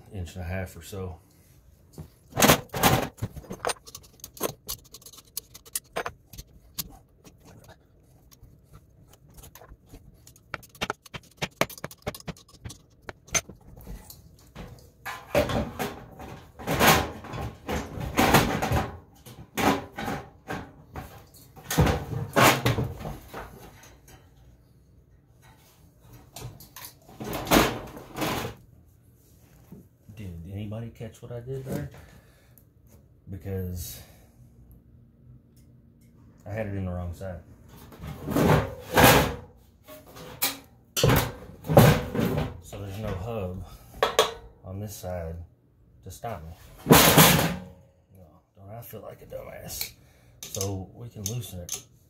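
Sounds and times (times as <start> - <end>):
metal scraping and rattling: 2.3 - 18.9
metal clicks and knocks: 2.4 - 13.8.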